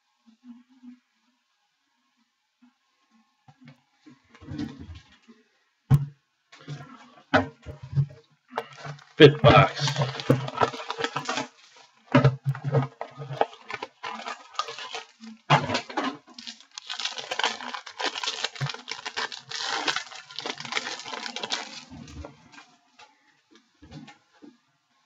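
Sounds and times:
wrapping and cardboard crinkling: 8.6 - 23.1.

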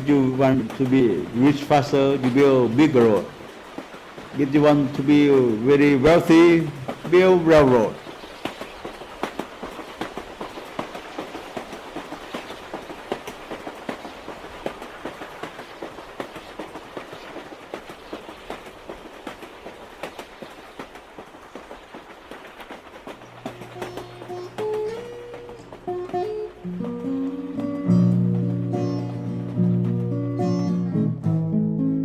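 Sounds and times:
train rumbling on rails: 0.0 - 31.2
guitar music: 23.4 - 32.0.

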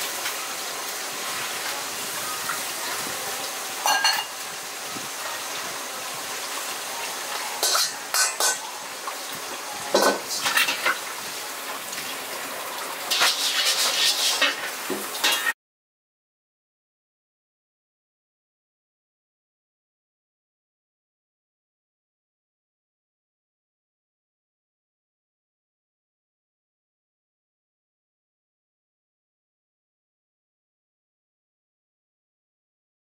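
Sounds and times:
metal pots clattering: 3.8 - 4.4, 7.6 - 8.7, 9.9 - 11.1, 13.1 - 15.5.

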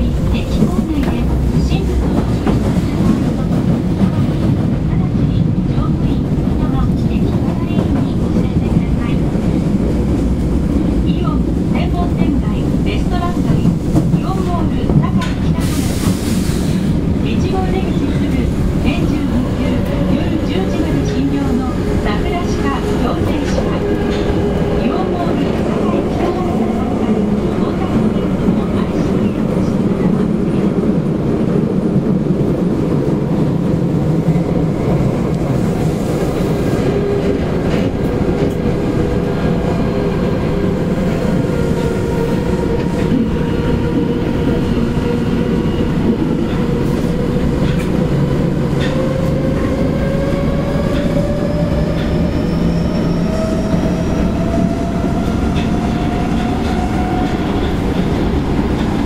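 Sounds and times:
rail-joint clicks: 0.0 - 4.5, 11.8 - 30.2, 45.8 - 49.7, 50.6 - 59.0
subway train wheels rumbling on rail: 0.0 - 59.0.

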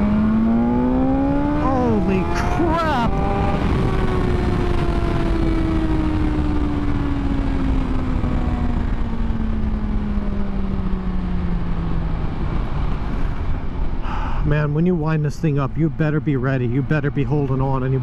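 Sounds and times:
wind rush on microphone: 1.2 - 14.6.

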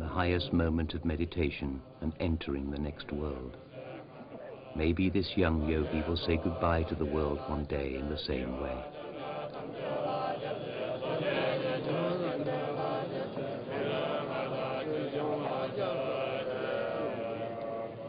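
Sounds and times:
monks chanting: 0.0 - 18.0.

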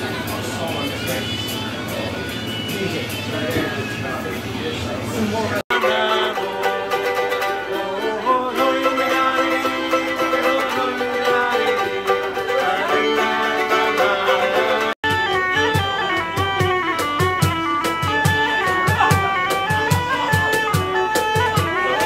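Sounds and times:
strummed string instruments: 0.0 - 22.0
fiddle playing lively tune: 5.7 - 22.0.

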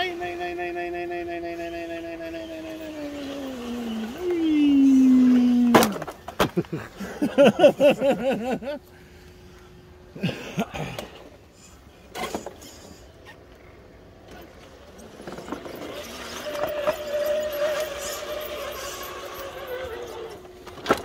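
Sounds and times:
electric motor whining: 1.5 - 6.2, 15.0 - 20.7.

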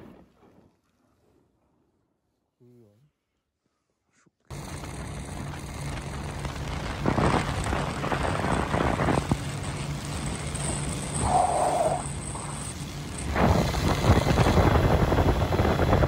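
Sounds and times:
outboard motor running: 4.5 - 16.0
water rushing past hull: 6.2 - 16.0.

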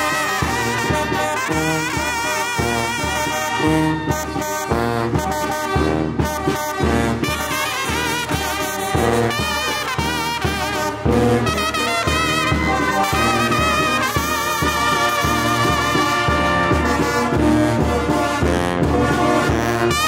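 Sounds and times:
wind band playing: 0.0 - 20.0
bass drum beat: 9.0 - 20.0.

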